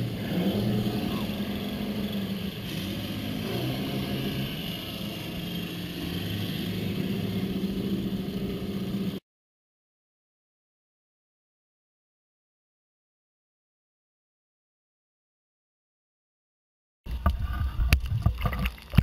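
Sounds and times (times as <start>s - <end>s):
boat engine running: 0.0s - 9.2s, 17.1s - 19.0s
wind on microphone: 17.1s - 19.0s.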